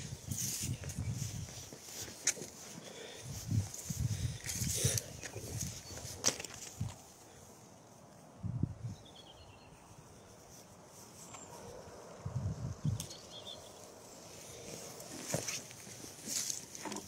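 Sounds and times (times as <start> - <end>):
wind buffeting microphone: 0.0 - 1.8, 3.1 - 7.0, 8.4 - 9.1, 12.2 - 13.3.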